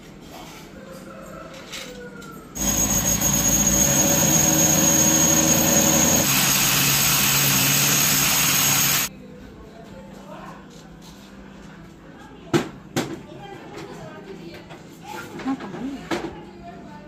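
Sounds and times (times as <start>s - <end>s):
power drill boring into masonry: 2.6s - 9.1s.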